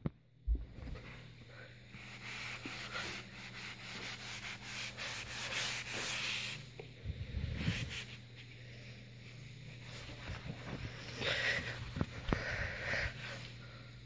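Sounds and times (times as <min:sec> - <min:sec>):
sponge scrubbing: 0:02.0 - 0:06.7.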